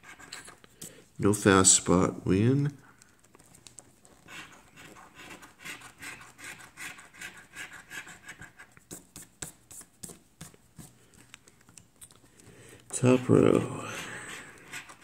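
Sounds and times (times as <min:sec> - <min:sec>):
coin scraping scratch card: 0:00.0 - 0:00.6, 0:04.1 - 0:09.0, 0:13.0 - 0:15.0.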